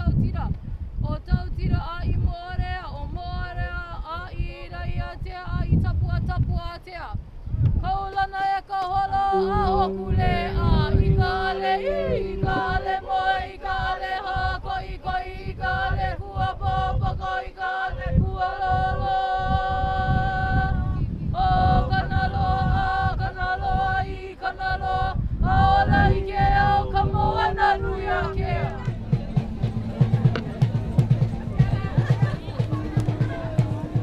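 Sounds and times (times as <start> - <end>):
woman chanting: 7.8 - 34.0
steady low tone: 9.2 - 14.7, 18.1 - 34.0.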